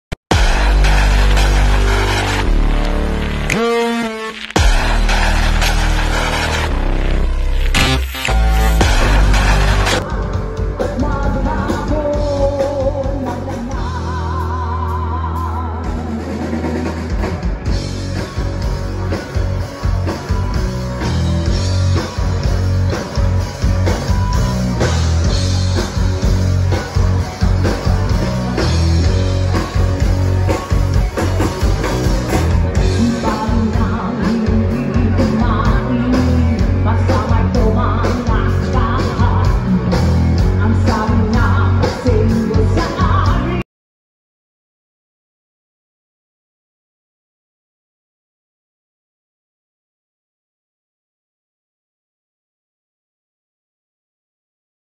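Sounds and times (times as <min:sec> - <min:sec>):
drum kit: 0:00.2 - 0:43.6
electric guitar: 0:00.3 - 0:43.6
woman singing into a microphone: 0:10.7 - 0:16.4, 0:33.0 - 0:39.6, 0:40.6 - 0:43.6.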